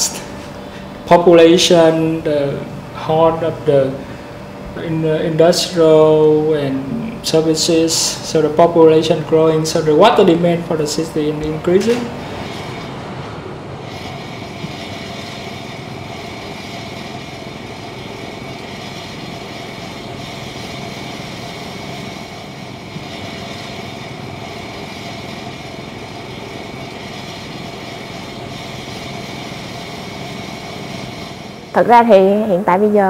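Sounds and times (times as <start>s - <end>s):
construction machinery hum: 0.0s - 33.0s
motorbike traffic: 9.5s - 33.0s.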